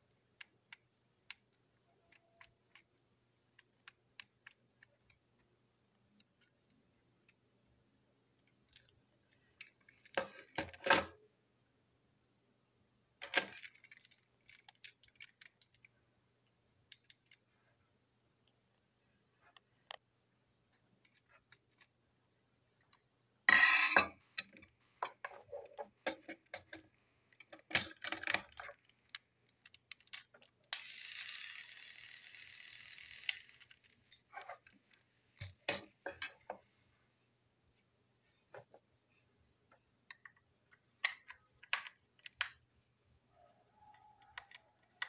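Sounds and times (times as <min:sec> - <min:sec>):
plastic toy parts clicking: 0:00.2 - 0:05.5, 0:08.4 - 0:11.2, 0:13.2 - 0:15.9, 0:16.9 - 0:17.4, 0:24.4 - 0:34.3, 0:41.0 - 0:42.6, 0:44.2 - 0:45.0.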